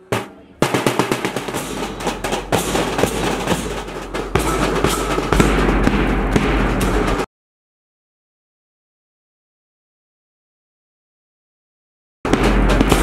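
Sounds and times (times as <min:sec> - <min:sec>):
bass drum strokes: 0:00.0 - 0:07.3, 0:12.3 - 0:13.0
snare drum rolls: 0:00.0 - 0:07.3, 0:12.3 - 0:13.0.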